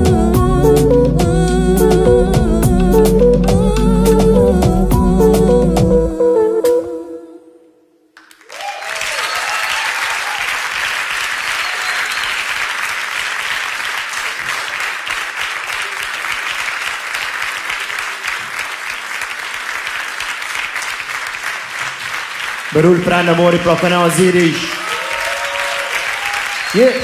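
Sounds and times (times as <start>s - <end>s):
audience applause: 8.2s - 27.0s
audience cheering: 8.4s - 14.8s, 22.8s - 27.0s.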